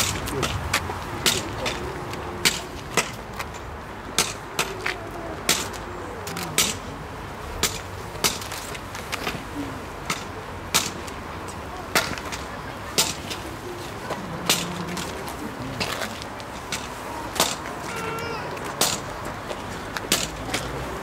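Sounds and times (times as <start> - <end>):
crowd murmur: 0.0 - 21.0.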